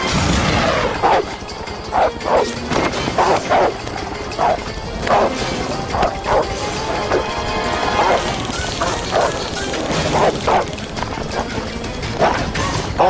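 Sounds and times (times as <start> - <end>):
background music: 0.0 - 13.0
dog barking sharply: 4.4 - 5.3, 8.0 - 9.4, 10.1 - 10.7.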